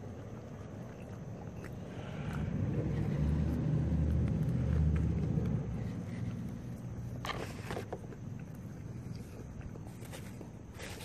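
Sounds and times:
passing vehicle engine rumble: 0:01.8 - 0:07.8.

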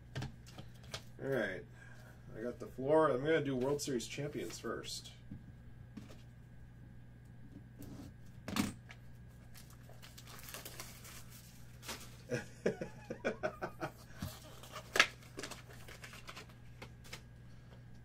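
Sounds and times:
plastic wrapping crinkling: 0:09.4 - 0:12.4, 0:14.3 - 0:17.2.

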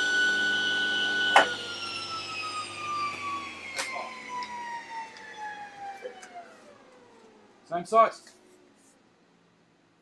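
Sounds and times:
table saw winding down: 0:00.0 - 0:07.6.

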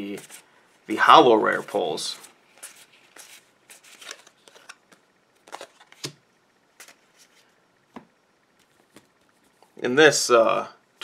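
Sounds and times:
trading cards flicking and rustling: 0:01.6 - 0:09.8.

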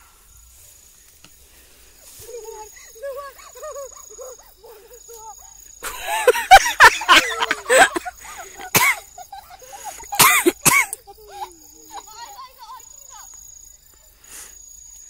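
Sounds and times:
high insect drone: 0:00.0 - 0:15.0
loud harsh cries: 0:05.1 - 0:13.2.

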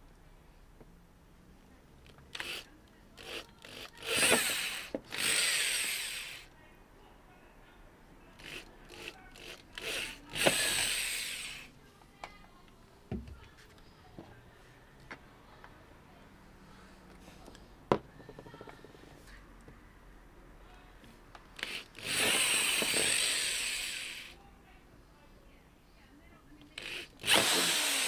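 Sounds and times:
power drill boring through plastic: 0:02.3 - 0:06.5, 0:08.4 - 0:11.7, 0:21.6 - 0:24.3, 0:26.8 - 0:28.0.

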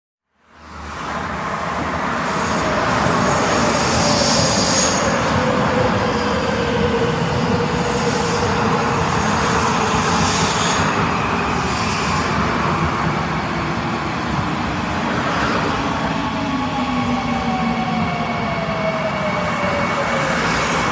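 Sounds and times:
metro train rumbling: 0:00.5 - 0:20.9.

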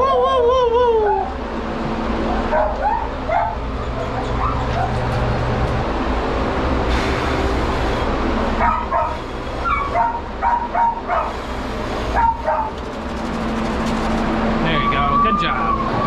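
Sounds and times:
dog yelping whines: 0:01.0 - 0:01.4, 0:02.4 - 0:05.1, 0:08.6 - 0:11.4, 0:12.1 - 0:12.8, 0:14.7 - 0:16.0.

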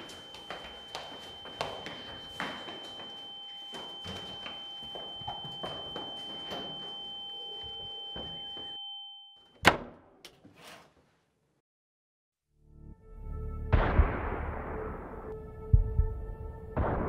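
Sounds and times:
hurried footsteps: 0:00.0 - 0:08.7
door slamming shut: 0:09.6 - 0:10.1.

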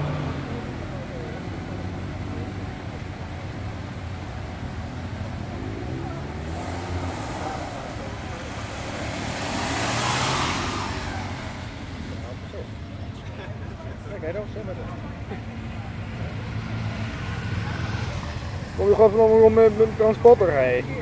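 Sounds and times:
car engine revving past: 0:04.6 - 0:12.8.

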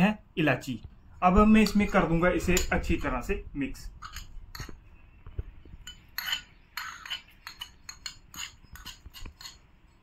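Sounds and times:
metal spoon scraping ceramic plate: 0:01.6 - 0:03.2, 0:03.9 - 0:04.8, 0:05.7 - 0:10.0.

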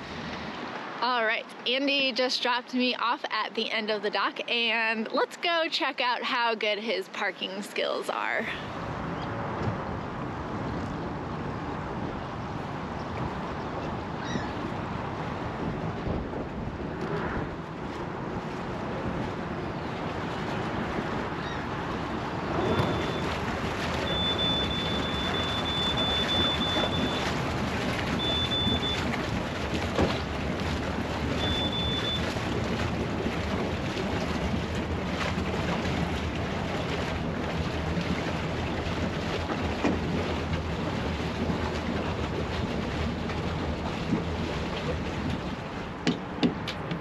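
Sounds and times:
rain: 0:00.0 - 0:01.7, 0:08.4 - 0:46.1
boat engines droning: 0:00.0 - 0:47.0
wind: 0:00.0 - 0:47.0.

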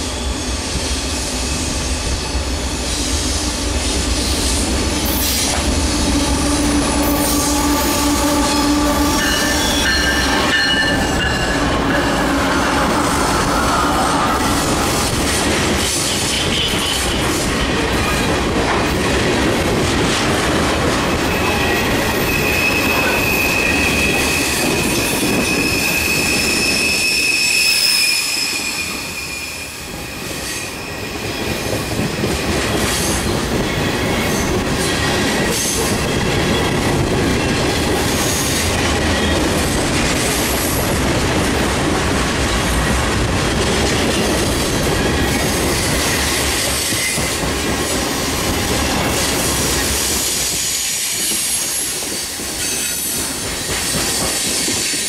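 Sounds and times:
high wheel squeal: 0:04.3 - 0:15.1, 0:21.4 - 0:31.5
train wheels clattering: 0:30.2 - 0:55.0.

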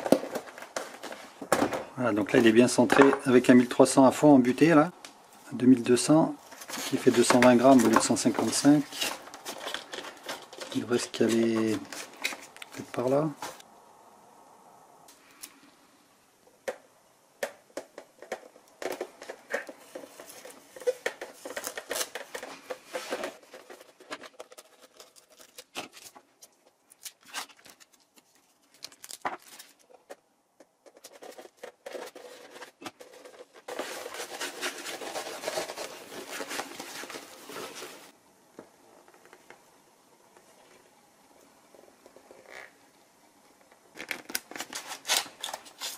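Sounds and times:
hands handling foam model: 0:06.4 - 0:13.6, 0:17.4 - 0:38.1
tape crinkling: 0:06.4 - 0:13.6, 0:18.2 - 0:30.2, 0:30.8 - 0:38.2, 0:43.9 - 0:45.9.

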